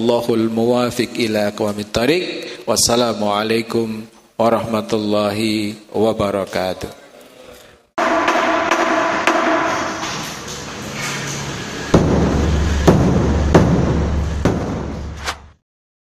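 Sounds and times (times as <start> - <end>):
large drum strokes ringing: 8.0 - 15.1.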